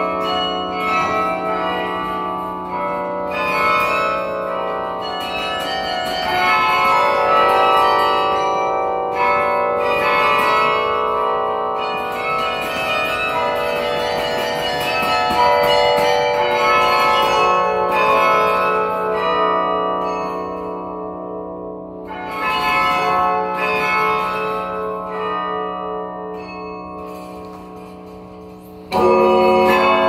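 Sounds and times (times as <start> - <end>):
carillon bells ringing: 0.0 - 30.0.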